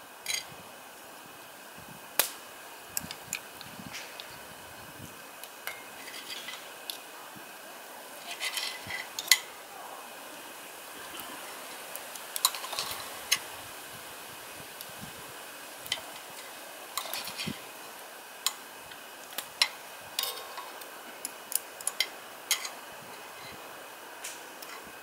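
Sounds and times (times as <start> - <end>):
faint steady hiss: 0.0 - 25.0
utensils scraping a frying pan: 5.7 - 6.7, 8.2 - 9.6, 15.9 - 17.6, 19.6 - 20.8, 21.8 - 23.6.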